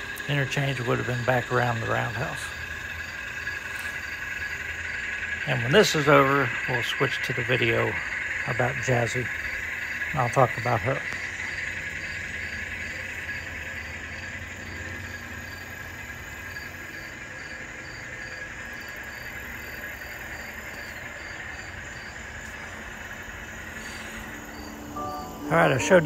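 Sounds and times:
model train cars rolling on track: 0:00.0 - 0:26.0
faint high chirp: 0:24.0 - 0:26.0.

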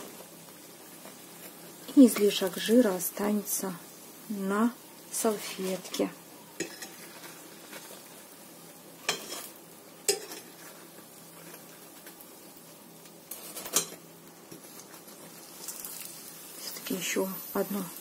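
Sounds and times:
oil sizzling in a frying pan: 0:00.0 - 0:18.0
metal utensils clinking on a pan: 0:05.7 - 0:07.3, 0:09.0 - 0:09.5, 0:10.1 - 0:10.7, 0:13.3 - 0:14.0.

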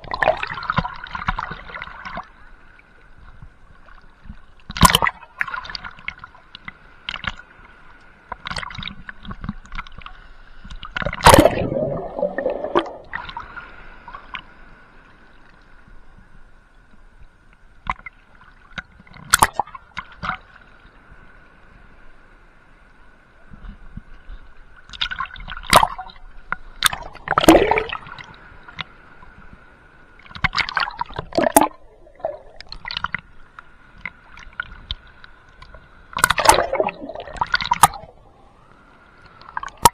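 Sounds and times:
water sloshing and gurgling: 0:00.0 - 0:21.2, 0:23.4 - 0:39.9
sharp splashes: 0:11.1 - 0:13.6, 0:26.8 - 0:28.2, 0:36.2 - 0:38.2.

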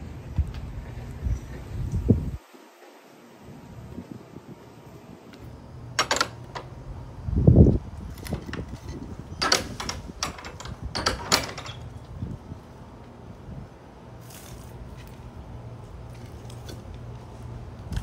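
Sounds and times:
wooden gate clicking and scraping: 0:05.3 - 0:06.9, 0:08.0 - 0:12.2.

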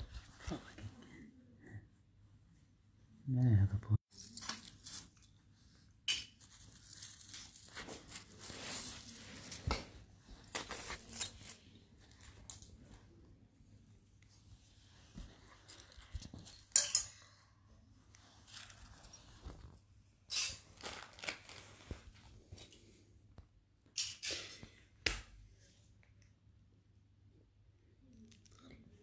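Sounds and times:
metal jewelry clinking on cloth: 0:06.0 - 0:13.3, 0:15.1 - 0:17.4.

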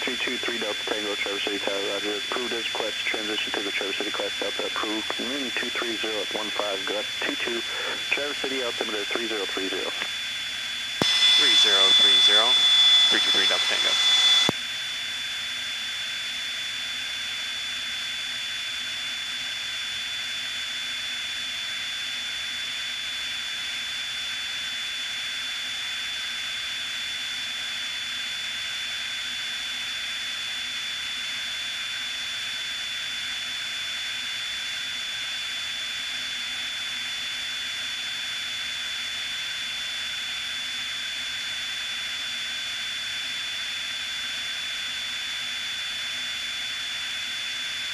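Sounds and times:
light plane cabin drone: 0:00.0 - 0:14.5
high-pitched whine: 0:11.0 - 0:14.5.

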